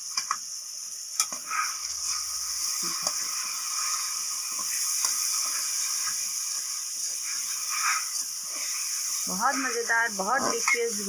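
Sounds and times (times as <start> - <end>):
meat sizzling in hot oil: 0.0 - 11.0.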